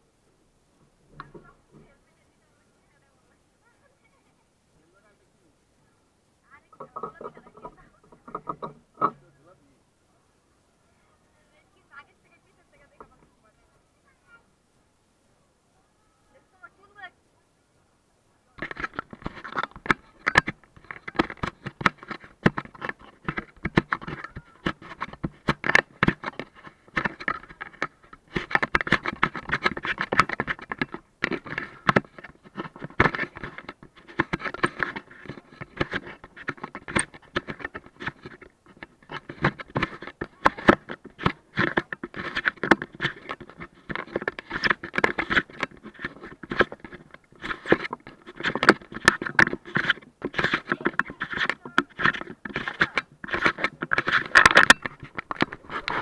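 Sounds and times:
fingers handling camera body: 18.6s - 56.0s.

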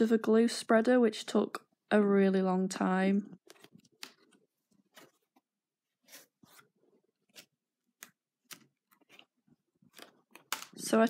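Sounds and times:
paper pages rustling: 3.4s - 10.8s.

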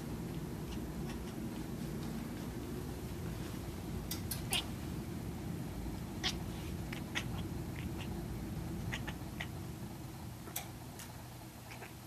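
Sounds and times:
cat chattering: 0.6s - 1.4s, 4.4s - 4.7s, 6.2s - 9.7s, 11.6s - 12.0s.

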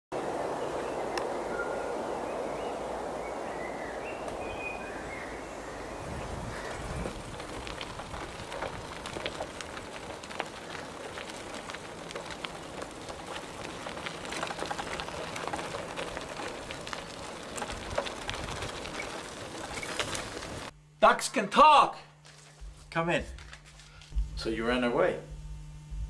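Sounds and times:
bicycle tyres rolling on gravel: 0.2s - 20.8s.

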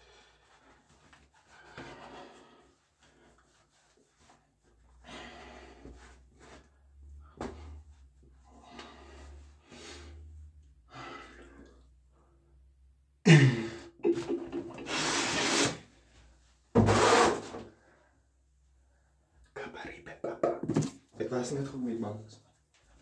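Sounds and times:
man breathing softly: 4.8s - 12.7s.

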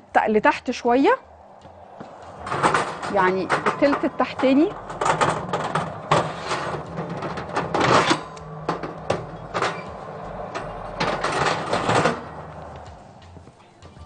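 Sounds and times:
oven rack clanking and rattling: 2.3s - 13.1s.

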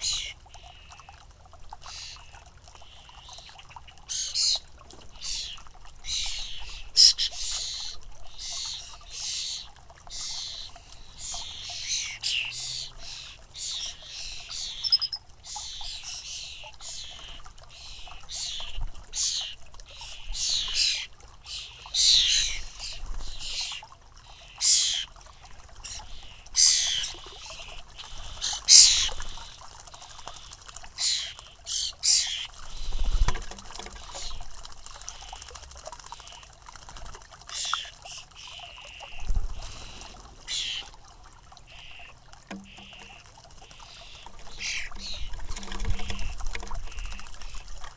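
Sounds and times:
young birds harsh begging calls: 5.2s - 25.0s, 25.8s - 29.3s, 30.4s - 32.5s, 37.5s - 40.9s, 42.7s - 45.4s.

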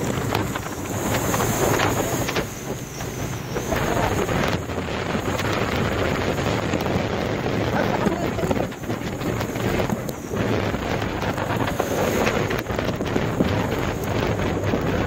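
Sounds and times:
traffic noise: 0.0s - 15.0s
wind on microphone: 0.0s - 15.0s.

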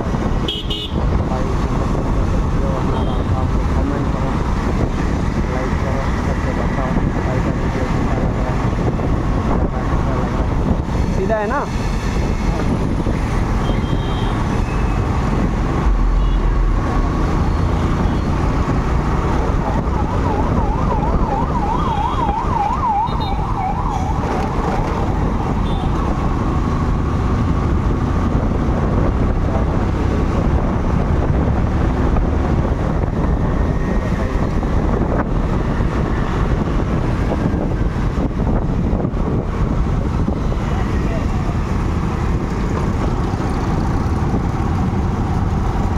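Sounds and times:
wind and road noise: 0.0s - 45.9s
electronic siren warbling: 19.6s - 25.6s.

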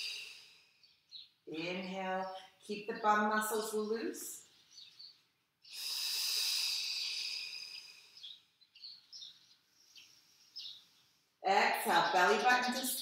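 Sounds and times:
high breathy hiss: 0.0s - 0.8s, 5.7s - 8.4s
faint bird chirps: 4.4s - 11.4s.

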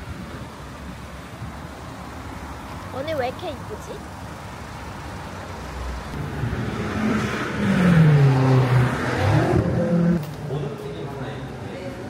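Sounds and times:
car driving past: 5.7s - 11.4s.

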